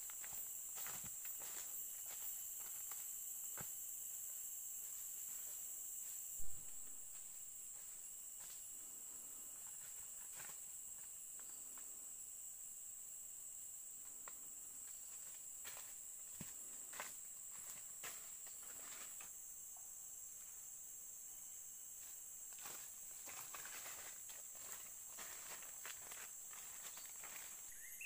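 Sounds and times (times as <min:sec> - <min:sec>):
insects chorus: 0:00.0 - 0:28.0
low thump: 0:06.4 - 0:07.2
footsteps crunching on leaf litter: 0:22.6 - 0:28.0.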